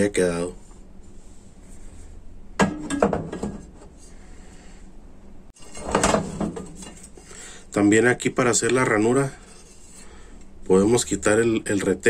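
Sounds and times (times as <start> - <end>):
hard objects knocking and clattering: 2.6 - 3.7.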